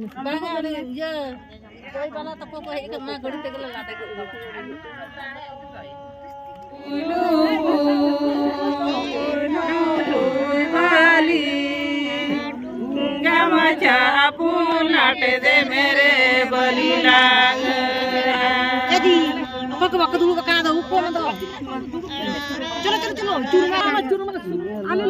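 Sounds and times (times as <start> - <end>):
women singing together: 5.0 - 25.0.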